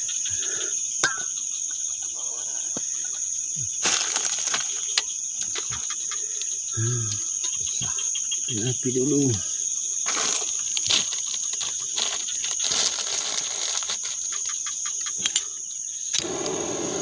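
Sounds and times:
insects trilling: 0.0 - 17.0
plastic bag rustling: 3.8 - 4.8, 10.1 - 14.2.

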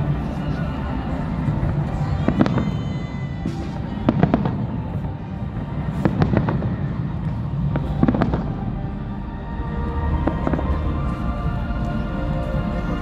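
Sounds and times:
fireworks bangs: 1.5 - 8.8.

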